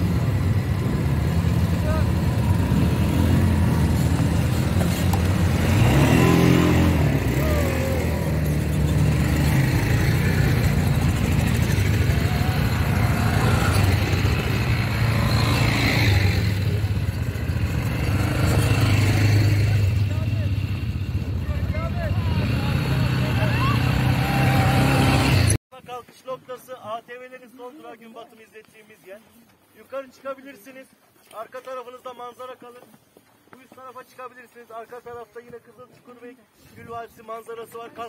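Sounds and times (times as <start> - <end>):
quad bike engines revving: 0.0 - 25.6.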